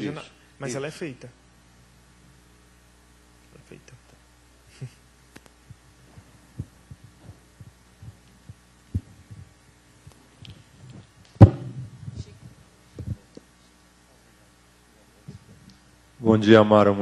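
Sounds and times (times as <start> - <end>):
sound system hum: 0.0 - 17.0
microphone handling noise: 5.3 - 13.8, 15.2 - 15.8
soft low thumps: 5.6 - 13.2.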